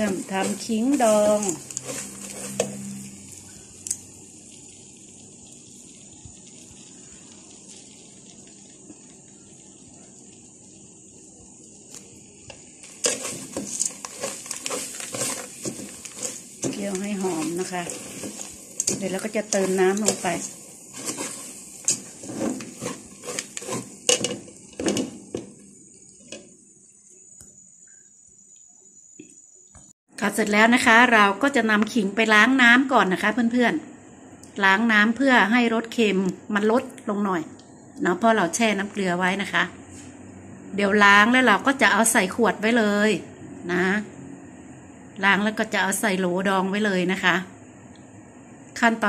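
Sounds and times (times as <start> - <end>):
metal spatula scraping metal pot: 0.0 - 3.2, 12.8 - 25.1
sugar hissing in a wok: 0.0 - 49.0.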